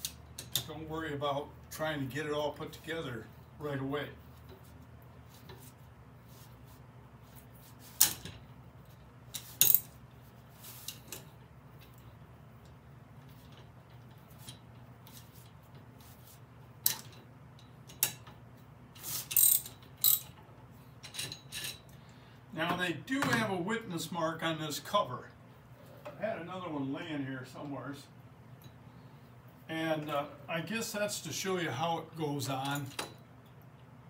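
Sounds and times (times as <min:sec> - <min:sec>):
low steady hum: 0:00.0 - 0:34.0
ratchet wrench clicking: 0:19.2 - 0:20.3.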